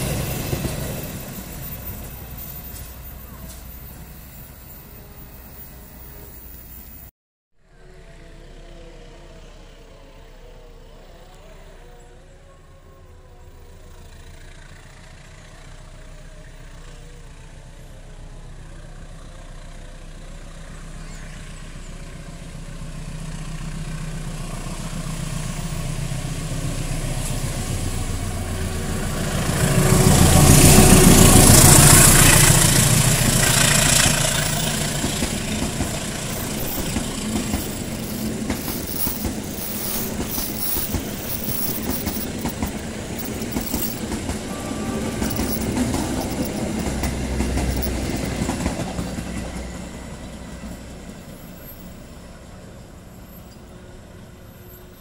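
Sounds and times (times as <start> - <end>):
locomotive passing: 0.0 - 7.1, 7.7 - 55.0
wheels clattering over rail joints: 28.3 - 49.8.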